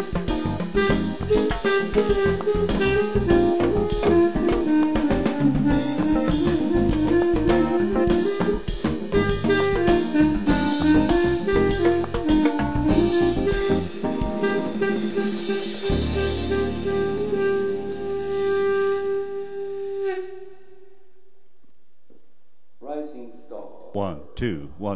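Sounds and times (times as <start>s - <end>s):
backing track drums and bass: 0.0s - 19.2s
clarinet playing samba melody: 0.0s - 21.1s.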